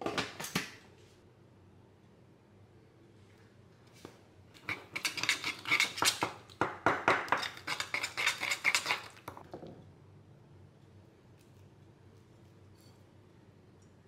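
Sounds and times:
metal spoon stirring in ceramic bowl: 4.6 - 9.4.

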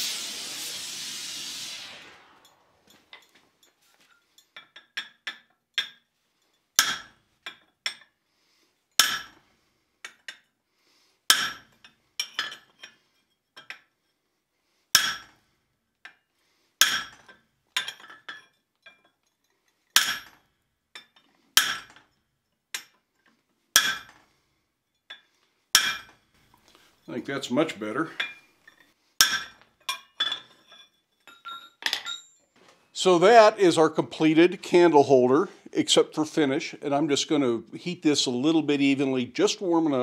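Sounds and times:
hammer striking metal on anvil: 6.8 - 7.1, 9.0 - 9.4, 11.3 - 11.7, 15.0 - 15.3, 16.8 - 17.2, 20.0 - 20.4, 23.8 - 24.1, 25.8 - 26.1, 29.2 - 30.0.

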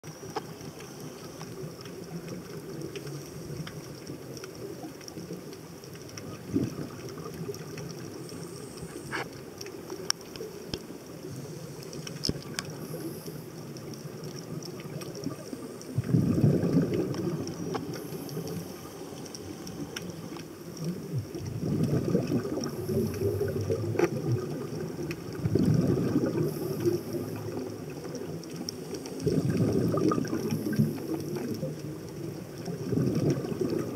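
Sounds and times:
steady low underwater rumble: 0.0 - 33.9
diver's breath bubbling: 15.2 - 28.3, 29.1 - 31.8.

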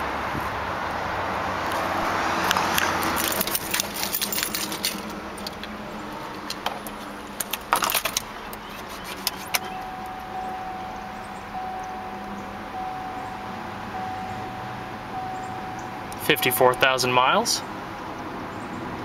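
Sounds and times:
car keys jangling and clicking: 2.4 - 10.9
steady high tone: 9.7 - 17.6.

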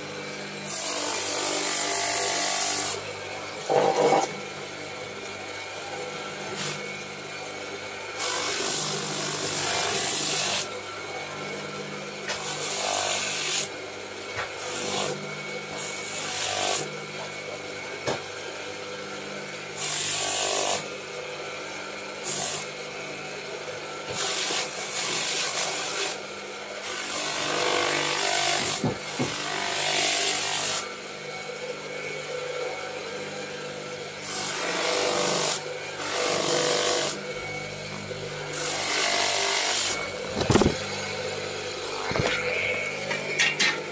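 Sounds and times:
spindle sander motor humming: 35.4 - 43.9.

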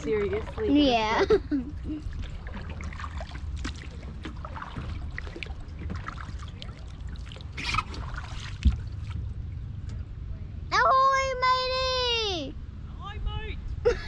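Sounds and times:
stream water trickling and splashing: 0.0 - 10.0
low steady rumble: 0.0 - 14.0.

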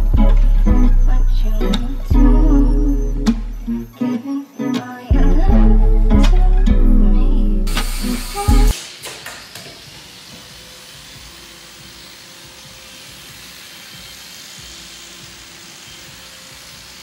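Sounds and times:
angle grinder on sheet metal: 7.7 - 17.0.

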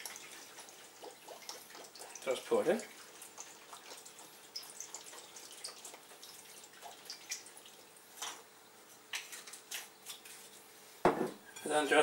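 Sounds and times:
liquid trickling into bowl: 0.0 - 8.4.

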